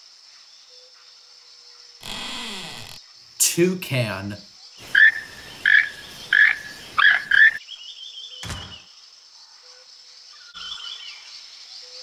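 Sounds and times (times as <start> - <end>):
toucan croaking calls: 2.0 - 3.0, 4.8 - 7.6
high insect buzz: 2.0 - 7.6
bird trills: 4.8 - 7.6
thump: 8.4 - 8.9.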